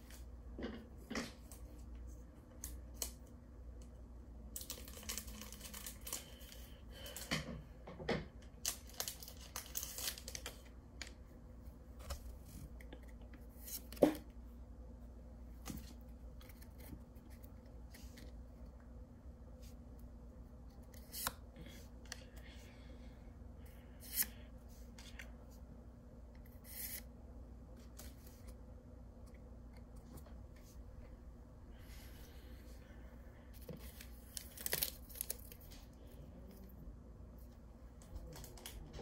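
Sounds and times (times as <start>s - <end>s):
foil wrapper rustling: 4.6s - 6.7s, 8.6s - 10.7s, 34.2s - 35.6s.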